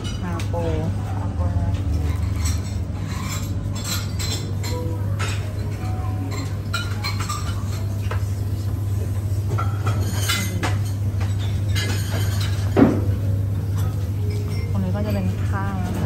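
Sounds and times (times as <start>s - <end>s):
dishes and cutlery clinking: 0.0s - 0.9s, 1.6s - 16.0s.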